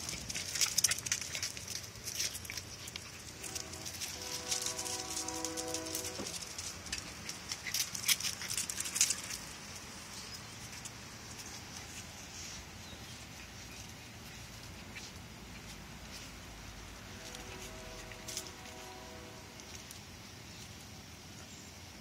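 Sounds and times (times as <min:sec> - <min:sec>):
puppy claws clicking on concrete: 0:00.0 - 0:12.1
low steady hiss: 0:00.0 - 0:22.0.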